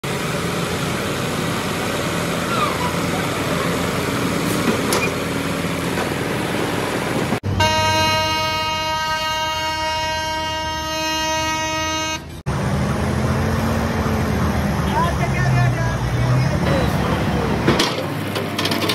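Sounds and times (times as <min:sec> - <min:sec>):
heavy vehicle engines running: 0:00.0 - 0:18.9
vehicle horn blaring: 0:07.4 - 0:12.4.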